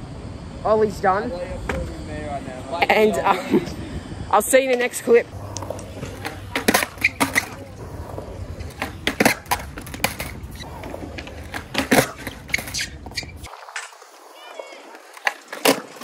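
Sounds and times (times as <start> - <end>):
skateboard wheels rolling on concrete: 0.0 - 16.0
skateboard clacking on ground: 4.6 - 16.0.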